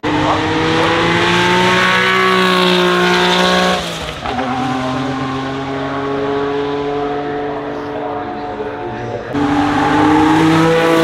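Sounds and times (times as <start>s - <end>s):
turbocharged engine running hard: 0.0s - 11.0s.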